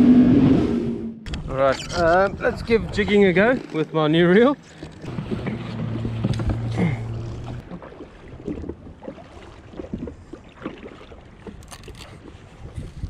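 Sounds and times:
water lapping against jet ski: 1.8s - 13.0s
low hum: 4.9s - 7.7s.

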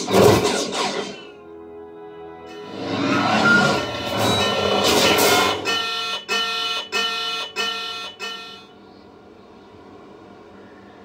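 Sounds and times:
film soundtrack music: 0.0s - 5.9s.

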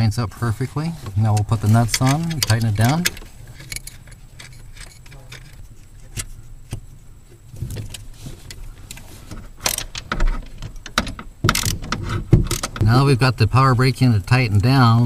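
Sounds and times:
low steady hum: 0.0s - 15.0s
metal clatter: 1.4s - 6.8s
wrench and nuts clicking: 1.7s - 6.3s.

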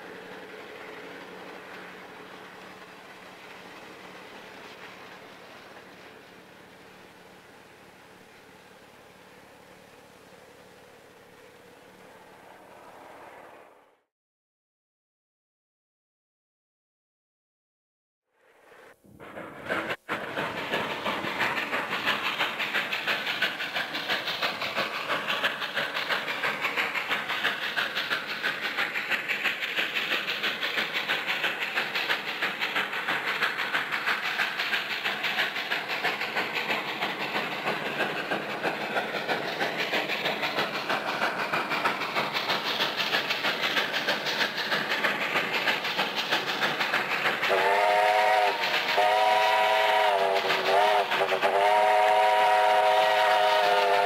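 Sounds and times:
steam locomotive exhaust beating: 0.0s - 13.4s, 18.6s - 54.0s
steam whistle blowing: 47.5s - 54.0s.

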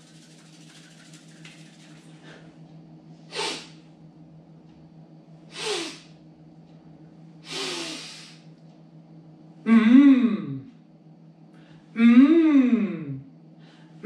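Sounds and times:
man making hissing vocal sounds: 3.3s - 3.8s, 5.5s - 6.2s, 7.4s - 8.5s.

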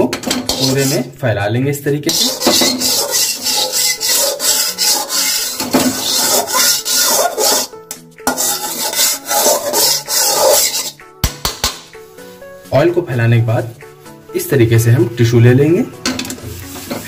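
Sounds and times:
metal spatula scraping pan: 0.0s - 1.2s, 2.1s - 11.8s, 16.0s - 17.0s.

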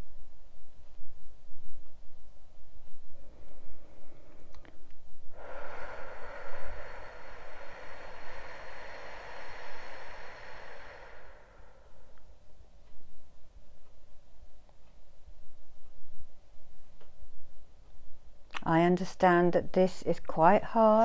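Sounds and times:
person exhaling slowly: 3.2s - 12.4s.

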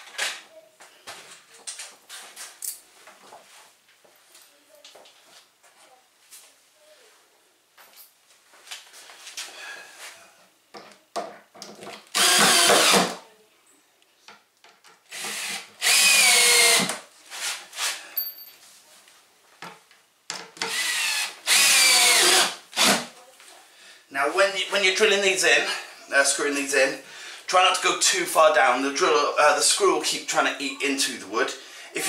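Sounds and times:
drill driving screws into wood: 12.1s - 13.2s, 15.1s - 17.0s, 20.6s - 23.1s.

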